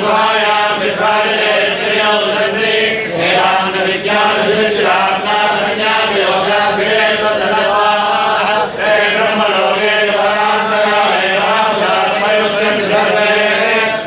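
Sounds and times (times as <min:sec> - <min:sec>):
men chanting in unison: 0:00.0 - 0:14.0.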